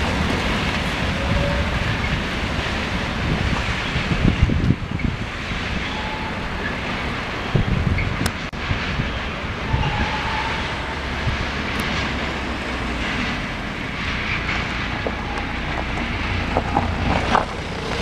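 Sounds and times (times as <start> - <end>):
freight train rumbling: 0.0 - 18.0
sharp clicks of wheels: 14.4 - 18.0.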